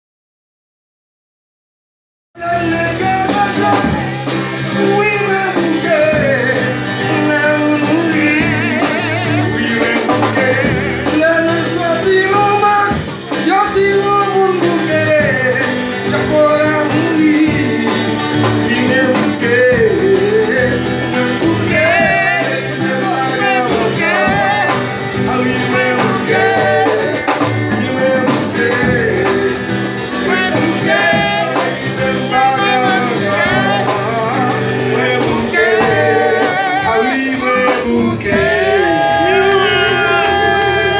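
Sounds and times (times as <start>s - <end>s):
men singing: 2.4s - 40.9s
strummed acoustic guitar: 2.4s - 40.9s.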